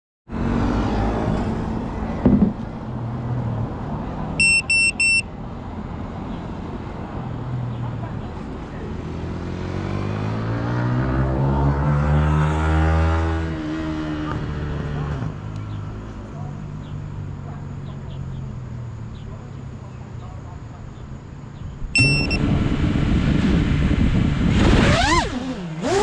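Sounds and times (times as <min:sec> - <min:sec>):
outdoor background noise: 0:00.3 - 0:26.0
thump: 0:02.2 - 0:02.6
high electronic beeps: 0:04.4 - 0:05.3, 0:22.0 - 0:22.4
quadcopter motors spinning up: 0:24.5 - 0:26.0.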